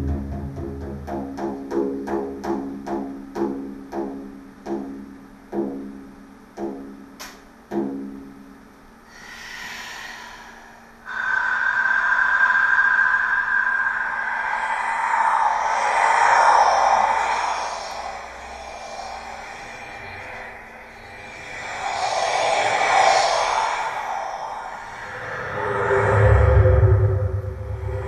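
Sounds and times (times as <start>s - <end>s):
frame drum beats: 0.0s - 8.4s
steady high tone: 9.1s - 28.0s.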